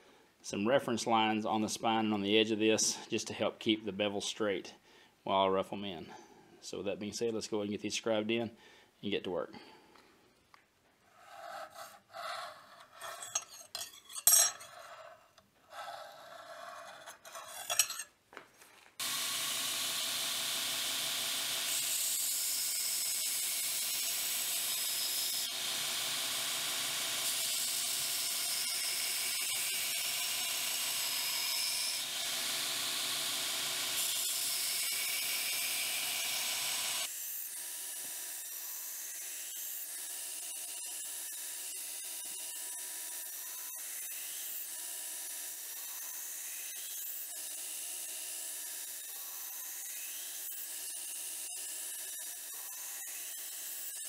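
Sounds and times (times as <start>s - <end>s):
scriber scratching steel: 11.1s - 18.1s
belt grinder hissing: 19.0s - 37.2s.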